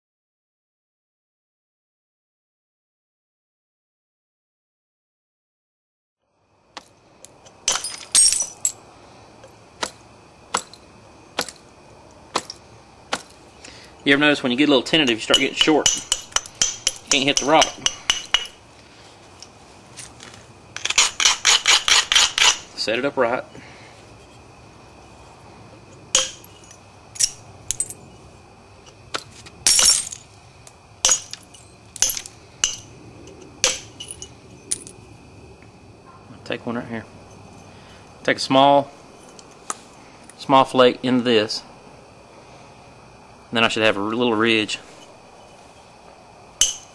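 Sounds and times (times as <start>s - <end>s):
sharp glassy stone clicks: 15.0s - 18.6s, 28.9s - 35.0s, 46.6s - 46.9s
knapping tool clicking on stone: 20.8s - 22.7s.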